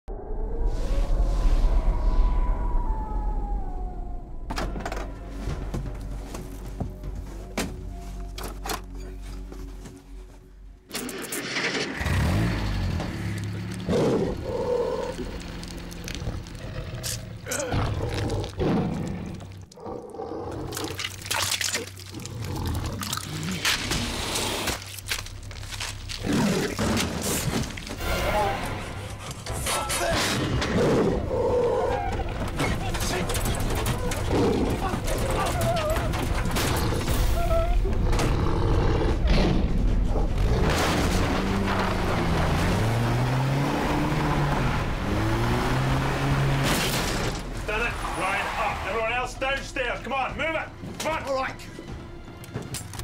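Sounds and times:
engine revving: 11.8 - 17.5, 38.1 - 47.5
wet squelching and splashing: 20.6 - 28.0
sharp wet hits: 20.7 - 26.2
wood crashing and splintering: 40.3 - 44.1.

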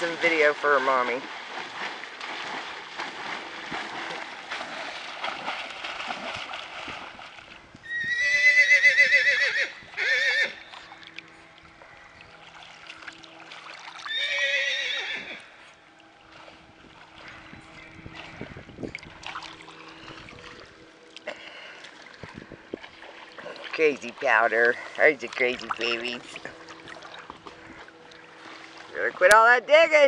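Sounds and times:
horse whinnying: 7.8 - 10.7, 14.1 - 15.5.

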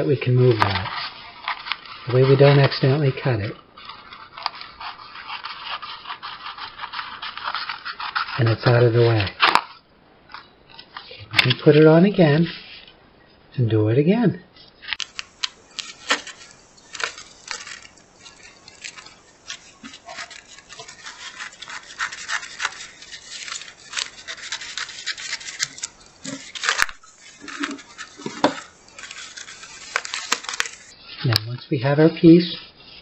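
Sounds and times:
sheet crinkling: 0.5 - 3.0, 3.8 - 11.6, 14.8 - 31.0
paper sheet rustling: 0.5 - 3.1, 3.8 - 11.6, 14.8 - 30.9
scissors cutting plastic sheet: 3.9 - 9.7, 14.9 - 30.9.

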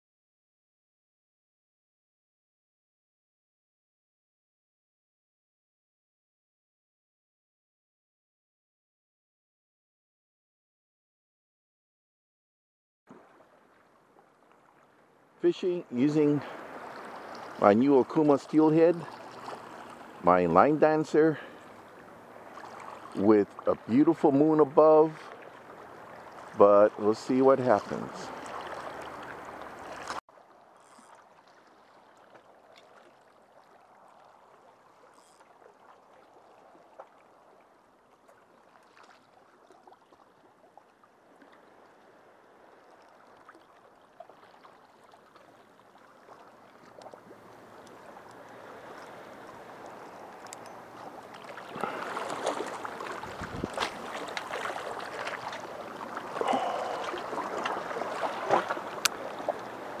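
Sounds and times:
small waves lapping: 13.1 - 60.0.

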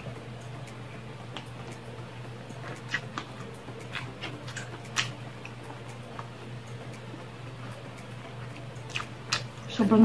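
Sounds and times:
steady low hum: 0.0 - 10.0
person chewing food: 1.3 - 9.6
wet mouth clicks and smacks: 8.9 - 9.5.

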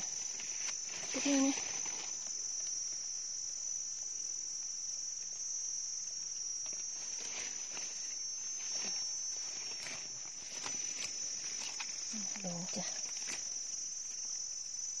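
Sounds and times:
insect chorus: 0.0 - 15.0.

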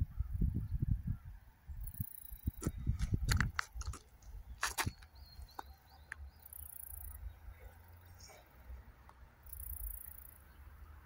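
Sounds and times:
wind rumbling on microphone: 0.0 - 5.4.

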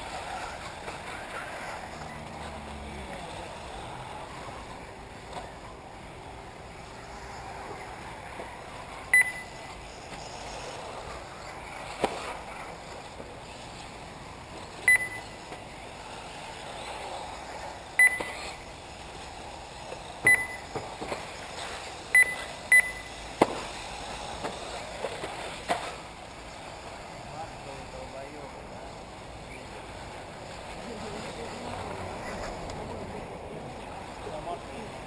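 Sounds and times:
short electronic beeps: 9.1 - 9.6, 14.9 - 15.4, 18.0 - 18.5, 20.2 - 20.7, 22.1 - 23.2.

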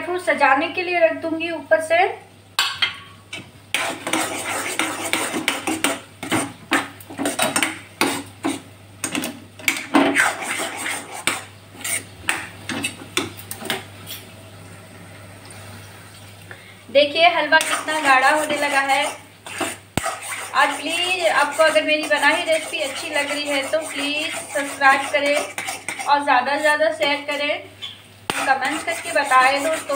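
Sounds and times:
metal spoon scraping metal pan: 3.7 - 8.6, 9.7 - 13.0, 17.5 - 27.5, 28.3 - 29.9.

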